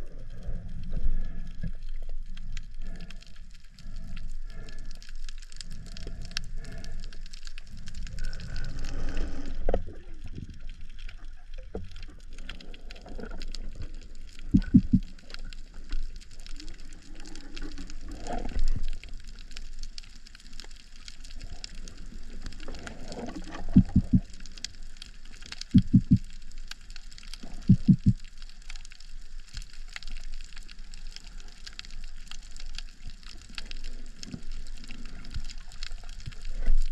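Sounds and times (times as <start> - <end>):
faint crackling: 0.1 - 36.9
water rushing underwater: 11.7 - 28.6.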